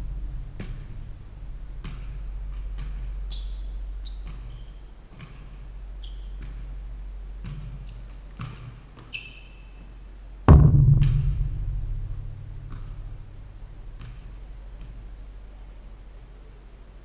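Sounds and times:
basketball dribbling: 0:01.8 - 0:06.8, 0:07.4 - 0:09.2
sneakers squeaking on hardwood: 0:02.8 - 0:06.8, 0:07.4 - 0:09.9
ball banging on backboard and rim: 0:10.5 - 0:15.0.

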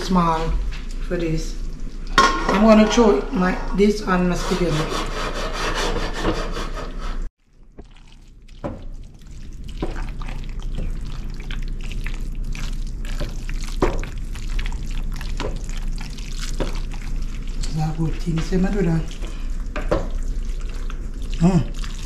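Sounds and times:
pasta squelching in sauce: 0:07.4 - 0:22.0.

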